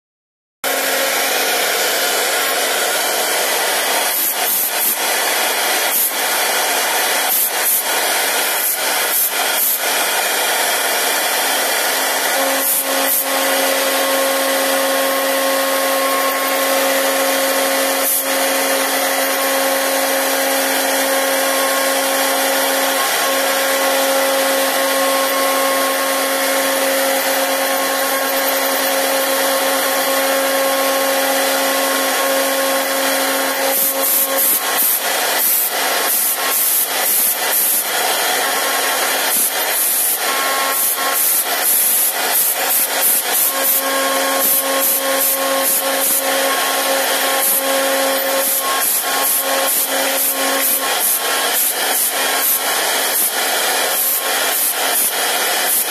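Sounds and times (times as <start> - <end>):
router spindle milling wood: 0.7 - 55.9.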